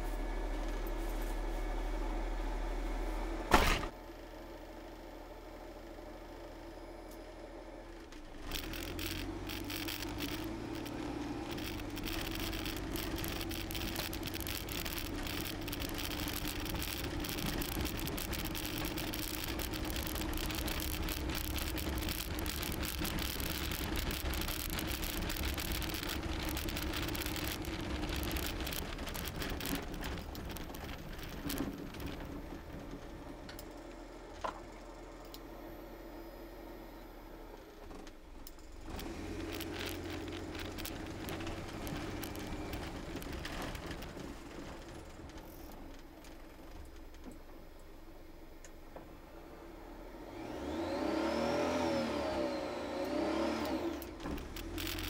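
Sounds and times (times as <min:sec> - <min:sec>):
car engine running under load: 0:00.0 - 0:55.0
sharp clicks: 0:08.4 - 0:32.4, 0:38.4 - 0:44.1, 0:53.6 - 0:55.0.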